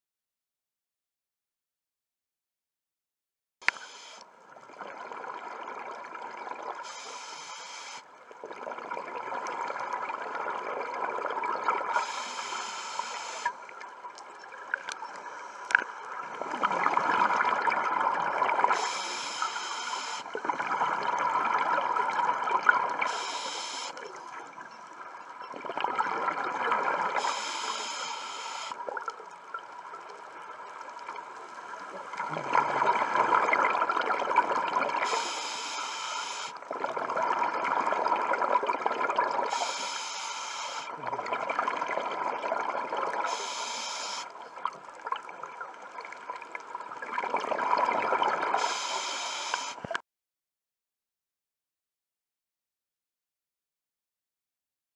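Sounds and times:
hissing regulator inhale: 0:03.7 - 0:04.2, 0:06.8 - 0:08.1, 0:12.0 - 0:13.6, 0:18.7 - 0:20.4, 0:23.1 - 0:24.0, 0:27.2 - 0:28.8, 0:35.0 - 0:36.6, 0:39.5 - 0:41.0, 0:43.2 - 0:44.3, 0:48.6 - 0:49.9
exhaled bubbles rushing: 0:16.3 - 0:18.8, 0:32.1 - 0:35.0, 0:36.7 - 0:39.5, 0:41.0 - 0:43.3, 0:47.0 - 0:48.6.

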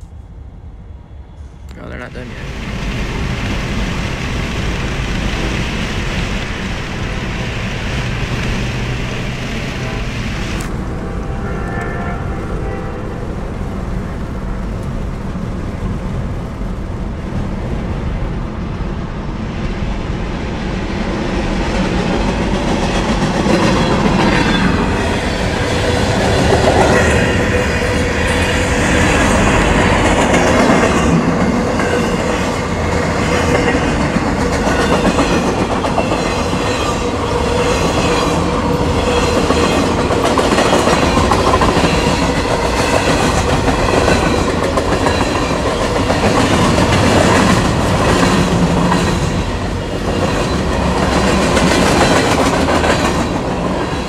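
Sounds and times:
freight train rumbling: 0:00.0 - 0:54.0
train wheels clacking: 0:22.0 - 0:54.0.

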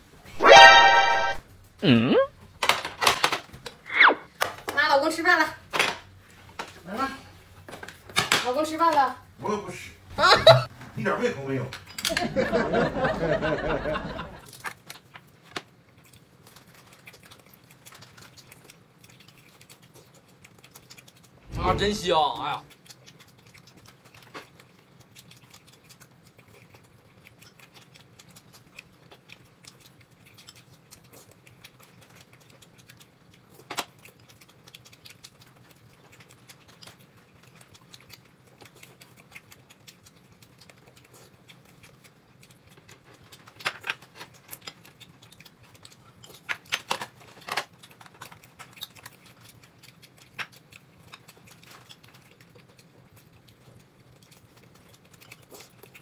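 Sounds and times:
chewing: 0:14.4 - 0:21.6, 0:22.4 - 0:56.0.

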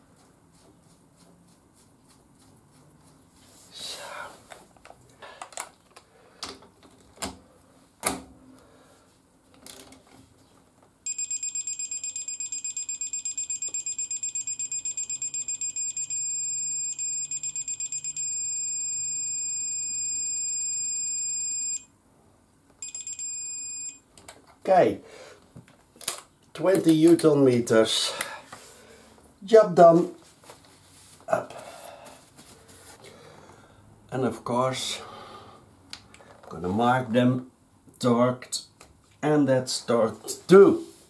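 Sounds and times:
torque wrench beeping: 0:11.1 - 0:21.8, 0:22.8 - 0:24.0.

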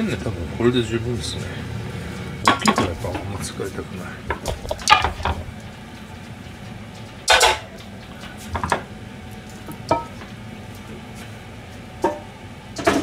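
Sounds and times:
low steady hum: 0:00.0 - 0:13.0
cookware clattering: 0:02.4 - 0:03.3, 0:04.3 - 0:05.5, 0:07.3 - 0:07.8, 0:09.9 - 0:10.2
metal cookware clinking: 0:07.3 - 0:07.8.

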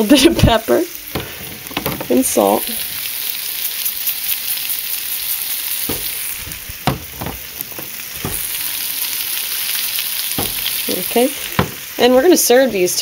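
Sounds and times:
vegetables sizzling in a pan: 0:00.0 - 0:13.0
sharp knocks: 0:01.2 - 0:02.3, 0:05.9 - 0:08.6, 0:10.4 - 0:11.9.

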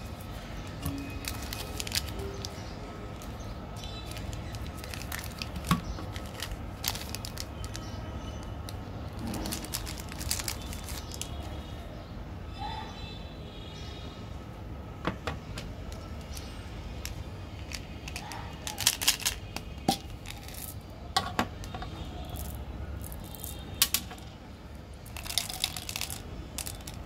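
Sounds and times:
light plastic crinkles: 0:00.1 - 0:11.9, 0:15.6 - 0:20.9, 0:25.0 - 0:27.0
plastic clicks: 0:15.6 - 0:21.8.

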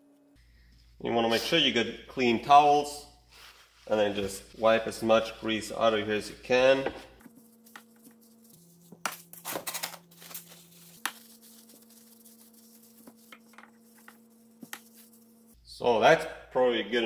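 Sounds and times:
paper towels rustling and wiping: 0:03.3 - 0:06.0, 0:07.2 - 0:09.4, 0:10.1 - 0:15.6.

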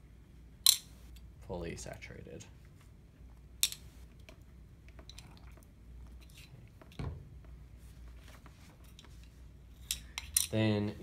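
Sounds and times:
dull thump: 0:07.0 - 0:07.5.

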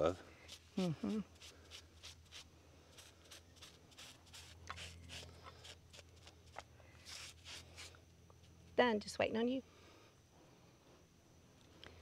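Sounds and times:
rubbing strokes on wood: 0:00.5 - 0:08.0.

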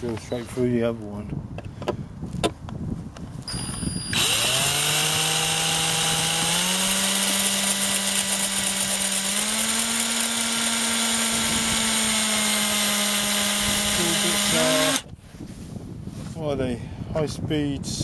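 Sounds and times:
electric drill whining: 0:03.5 - 0:15.1.

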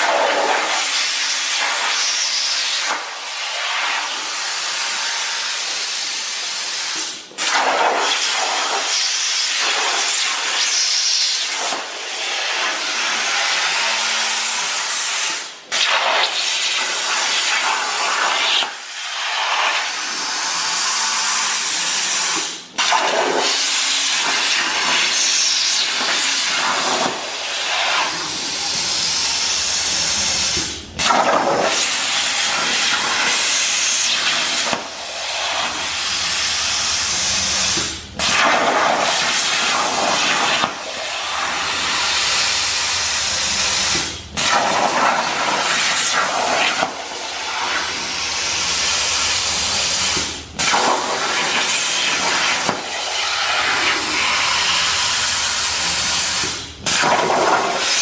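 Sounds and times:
plasma cutter torch hissing: 0:00.1 - 0:58.0.

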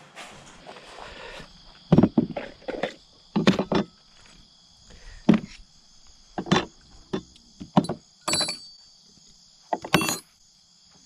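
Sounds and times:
high insect trill: 0:00.3 - 0:11.0
tools set down on wooden board: 0:01.9 - 0:04.4, 0:05.2 - 0:05.6, 0:06.4 - 0:08.8, 0:09.7 - 0:10.3.

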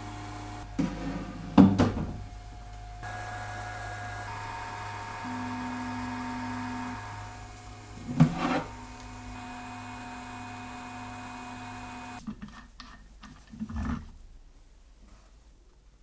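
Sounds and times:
printer motor whine and hum: 0:02.6 - 0:12.2.

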